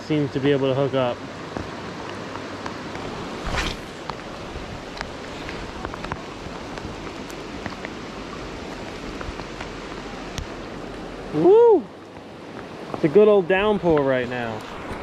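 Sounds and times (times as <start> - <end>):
heavy rain on river surface: 0.1 - 15.0
sharp taps of raindrops: 4.0 - 10.6.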